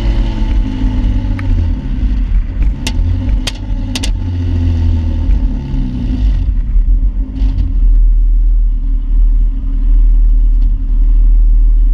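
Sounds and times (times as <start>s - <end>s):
car engine idling loudly: 0.0s - 11.9s.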